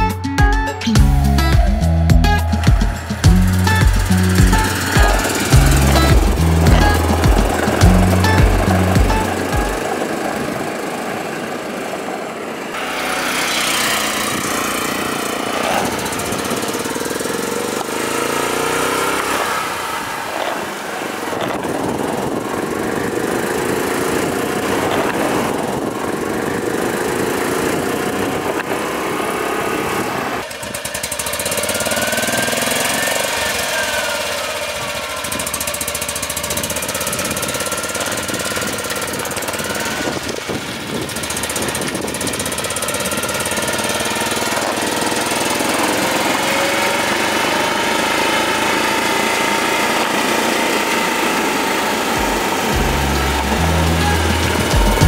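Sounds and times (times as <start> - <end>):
small car engine accelerating: 0.0 - 55.0.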